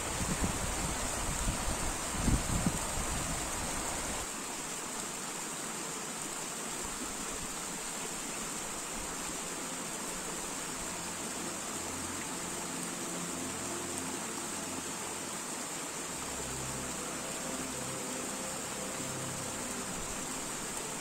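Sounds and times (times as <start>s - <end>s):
wind rumble on microphone: 0.0s - 4.3s
stream running over rocks: 0.0s - 21.0s.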